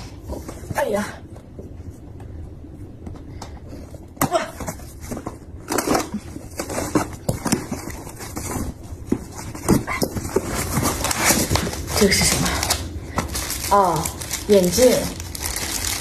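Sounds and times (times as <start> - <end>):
cardboard and tape tearing: 9.4 - 16.0.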